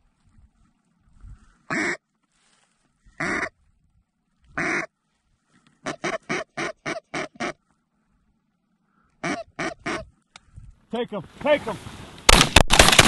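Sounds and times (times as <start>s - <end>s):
duck call quacks: 1.7s - 2.0s, 3.2s - 3.5s, 4.6s - 4.9s, 5.8s - 7.6s, 9.2s - 10.1s.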